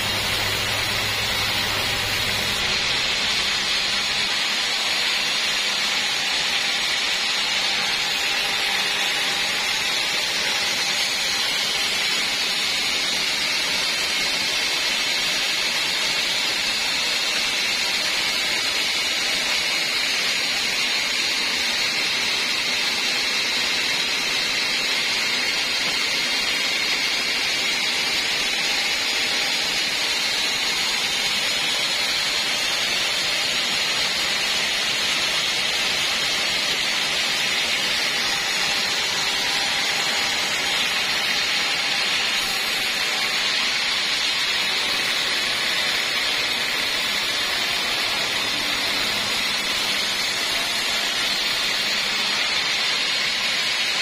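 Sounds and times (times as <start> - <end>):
band saw hissing: 0.0 - 13.0, 32.2 - 53.7.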